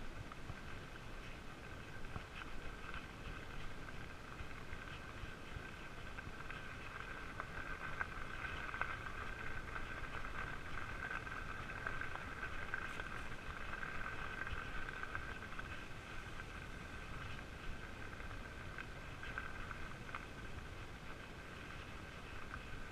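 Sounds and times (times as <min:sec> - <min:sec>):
bike tyres rolling on gravel: 0:00.0 - 0:22.9
grit clicking under tyres: 0:00.0 - 0:22.9.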